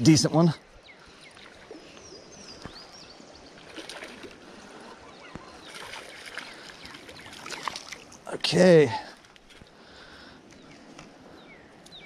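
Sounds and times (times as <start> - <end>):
creek water running over rocks: 1.3 - 9.8.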